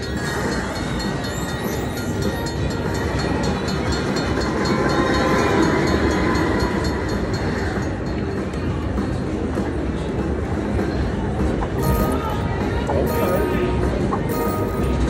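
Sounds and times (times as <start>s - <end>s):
slot machine train sound effect: 11.8s - 15.0s.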